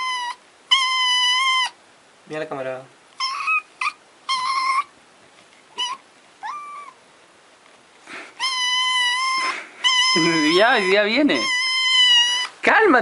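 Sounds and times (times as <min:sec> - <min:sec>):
kitten meowing: 0:00.0 - 0:01.8, 0:03.2 - 0:04.9, 0:05.8 - 0:07.0, 0:08.4 - 0:12.6.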